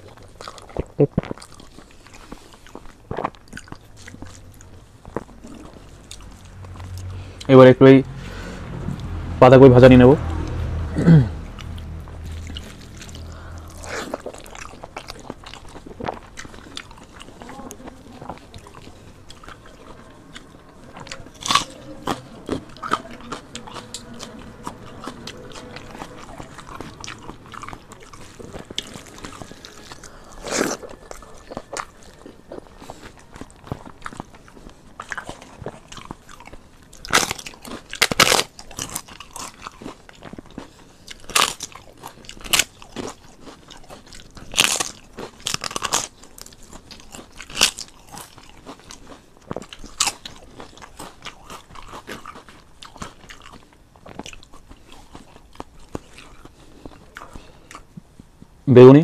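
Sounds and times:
soft chewing and mouth sounds: 0.0s - 9.2s, 11.5s - 58.7s
loud crunches of fried crisps: 24.6s - 57.6s.

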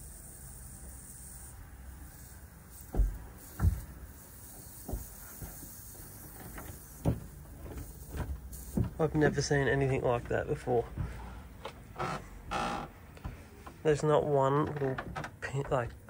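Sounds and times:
dull handling knocks: 2.9s - 4.0s, 4.7s - 9.5s.

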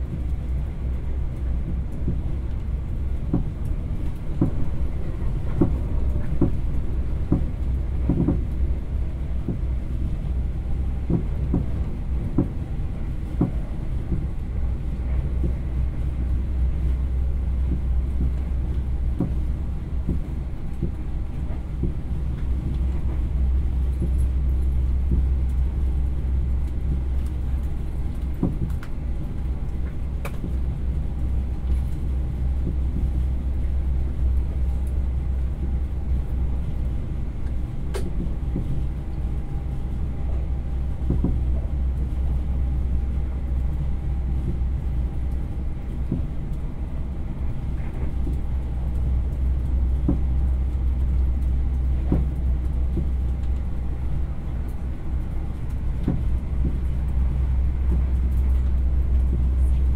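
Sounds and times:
moving train rumble: 0.0s - 59.9s.

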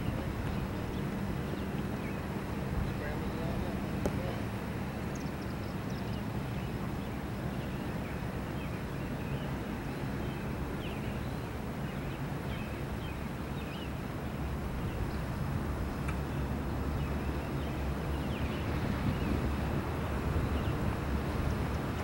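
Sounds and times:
steady low rumble: 14.2s - 22.0s.

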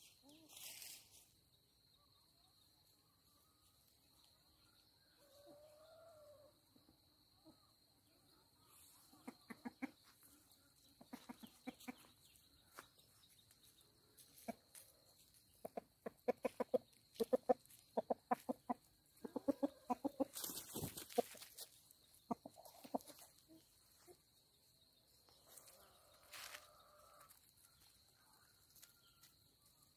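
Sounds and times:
chicken clucking: 3.2s - 29.9s.

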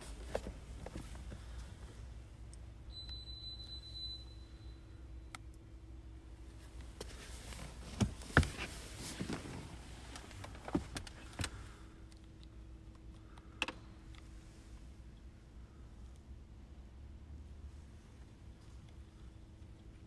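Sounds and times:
rustling inside car: 0.0s - 2.1s, 6.5s - 11.7s
faint steady hum: 0.0s - 20.0s.

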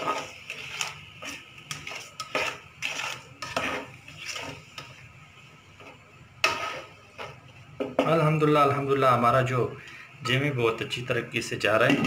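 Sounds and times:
plastic spatula scraping a pot: 0.0s - 5.0s, 6.4s - 7.4s.

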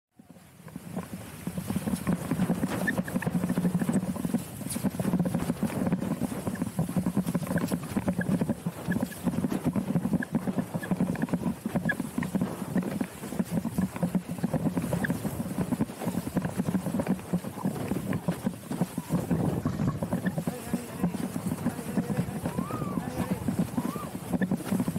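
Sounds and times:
board hull slapping water: 0.2s - 24.9s
water rushing: 19.3s - 24.4s.

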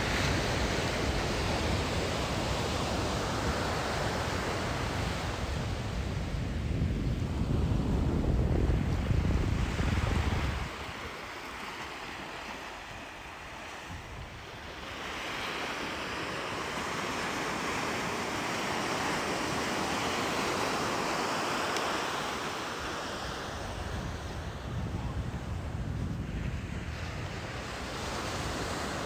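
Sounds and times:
wind buffeting microphone: 0.0s - 11.5s, 12.1s - 15.0s, 23.5s - 29.0s
ocean surf breaking on beach: 0.0s - 29.0s.

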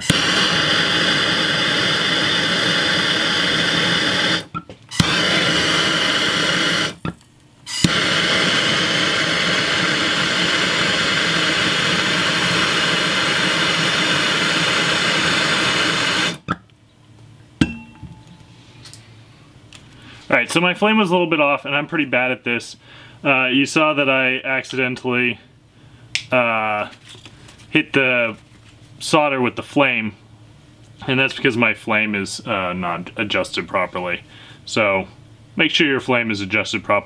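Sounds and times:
gas torch flame hissing: 0.0s - 16.6s
torch ignition click: 0.0s - 16.6s.

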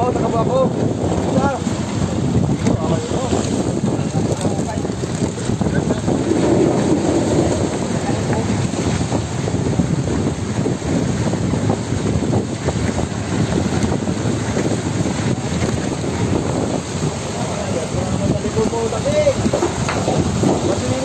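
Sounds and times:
men's voices: 0.0s - 9.0s, 16.2s - 21.0s
wind on microphone: 0.0s - 21.0s.

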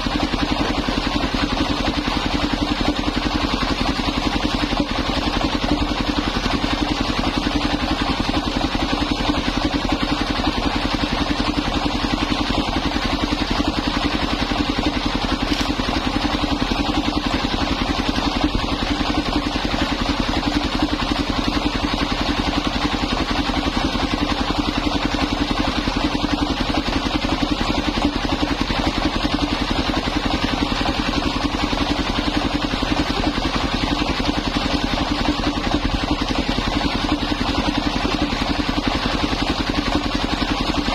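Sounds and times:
sawmill engine running: 0.0s - 40.9s
circular saw cutting wood: 14.8s - 18.3s.

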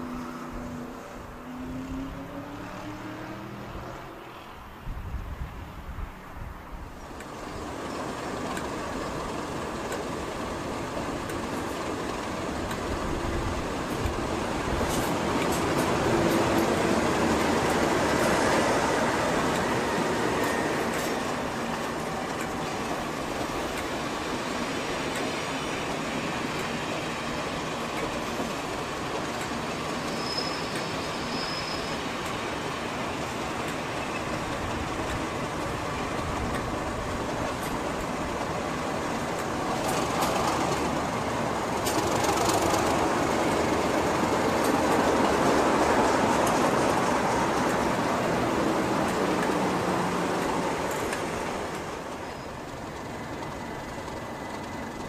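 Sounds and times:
diesel locomotive engine: 0.0s - 55.0s
train wheels clicking over rail joints: 7.0s - 55.0s
wheel squeal: 29.9s - 32.2s.

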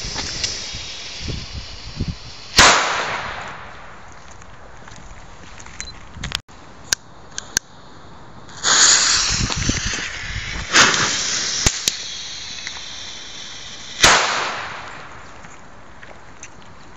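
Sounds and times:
firecracker burst: 0.0s - 4.1s, 8.5s - 15.3s
firecracker hissing: 0.0s - 4.1s, 7.4s - 15.4s.

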